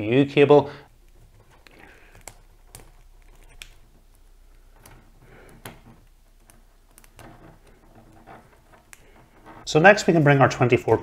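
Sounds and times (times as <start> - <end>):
cable handling noise: 0.9 - 11.0.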